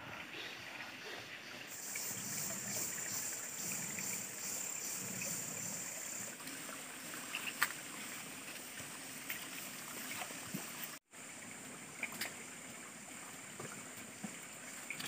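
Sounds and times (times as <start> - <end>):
stream flowing over rocks: 0.0 - 15.0
insect buzzing: 1.7 - 6.4.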